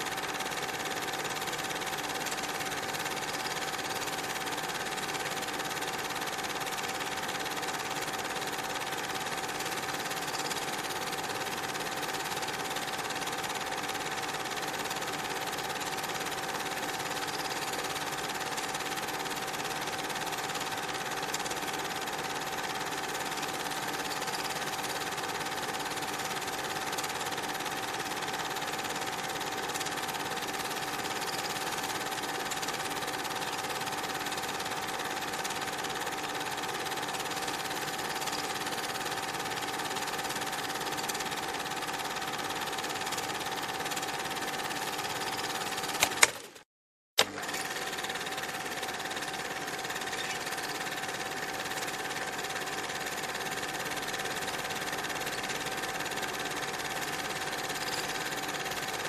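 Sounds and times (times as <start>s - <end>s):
film projector whirring and clattering: 0.0s - 46.6s, 47.2s - 59.0s.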